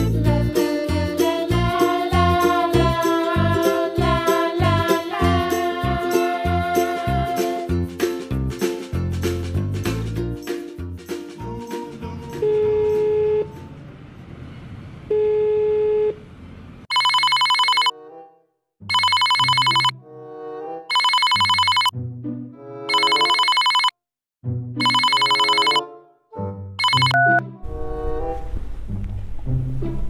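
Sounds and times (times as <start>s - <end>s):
music: 0.0s - 13.7s, 17.9s - 18.6s, 19.9s - 20.9s, 21.9s - 23.1s, 24.4s - 30.0s
telephone ringing: 16.9s - 17.9s, 18.9s - 19.9s, 20.9s - 21.9s, 22.9s - 24.0s, 24.8s - 25.8s, 26.8s - 27.4s.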